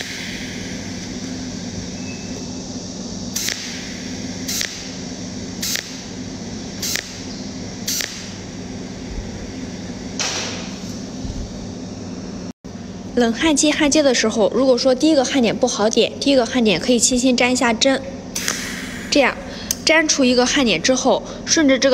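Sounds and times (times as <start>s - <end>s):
welding machine crackling zap: 0.0s - 2.6s, 3.2s - 11.1s
steady hum: 0.0s - 21.9s.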